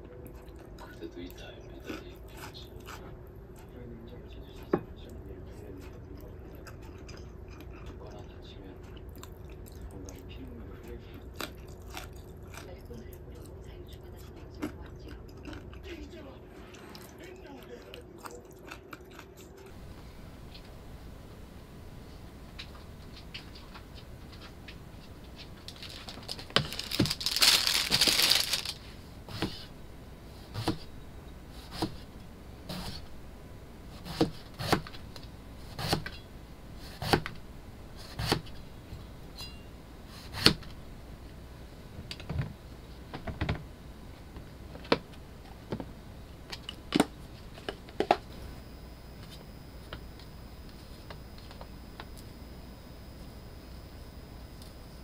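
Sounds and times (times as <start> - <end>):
knife chopping on cutting board: 31.7 - 32.0, 34.0 - 34.9.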